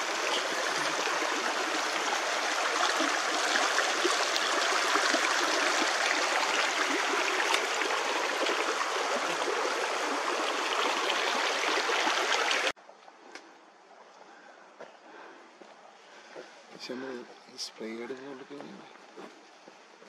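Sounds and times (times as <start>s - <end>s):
creek splashing over stones: 0.0s - 13.0s.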